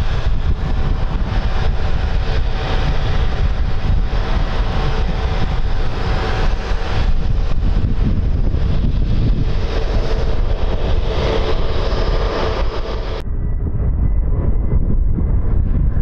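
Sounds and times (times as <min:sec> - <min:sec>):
jet engines idling whine: 0:00.0 - 0:16.0
wind rumble on microphone: 0:00.0 - 0:16.0.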